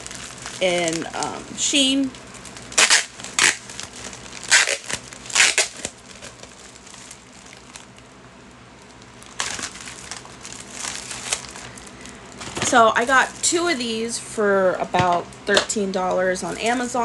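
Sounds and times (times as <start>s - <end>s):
plastic packaging crinkling: 0.0s - 14.0s, 16.0s - 17.0s.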